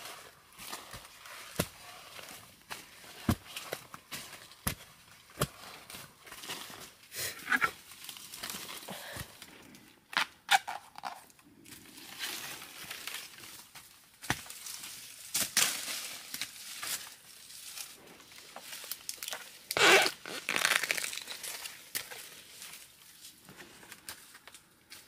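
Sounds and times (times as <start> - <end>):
digging knocks and crunches: 0.0 - 9.4, 12.2 - 17.1, 18.3 - 23.8
dry leaves crackling and rustling: 11.9 - 24.3.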